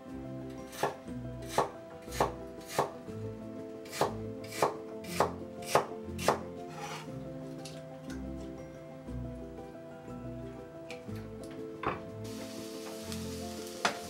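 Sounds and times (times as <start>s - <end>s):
knife chopping on wooden board: 0.7s - 3.0s, 3.9s - 7.1s.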